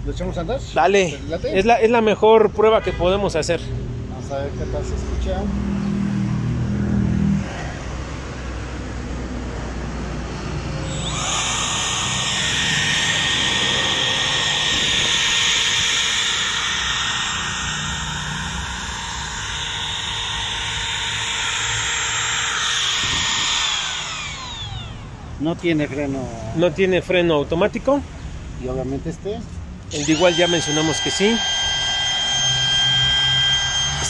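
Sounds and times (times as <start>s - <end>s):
router high-pitched whine: 10.3s - 26.0s, 29.9s - 34.0s.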